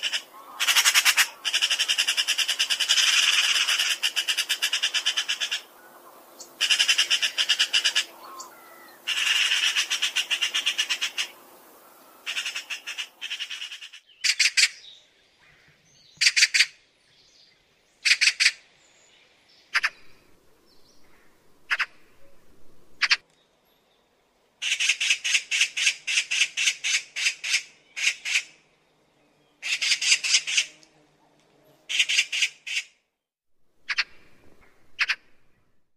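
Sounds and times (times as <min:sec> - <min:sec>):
magpie chattering: 0:00.0 - 0:05.7, 0:06.6 - 0:08.1, 0:09.1 - 0:11.3, 0:12.3 - 0:14.8, 0:16.2 - 0:16.7, 0:18.0 - 0:18.6, 0:21.7 - 0:22.0, 0:24.6 - 0:28.5, 0:35.0 - 0:35.2.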